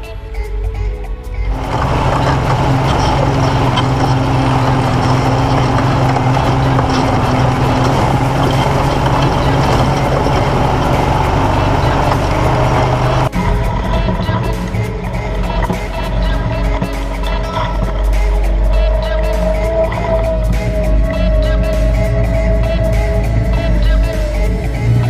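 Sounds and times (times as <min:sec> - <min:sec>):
music: 0:00.0 - 0:25.0
tyres churning through mud: 0:01.5 - 0:18.1
atv engine running: 0:01.5 - 0:25.0.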